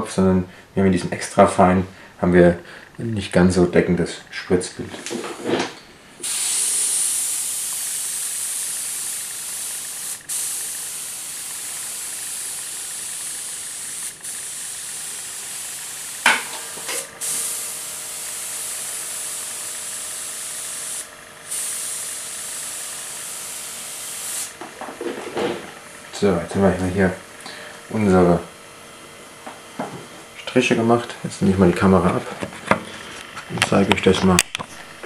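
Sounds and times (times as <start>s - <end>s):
airbrush hissing: 6.2s - 24.8s.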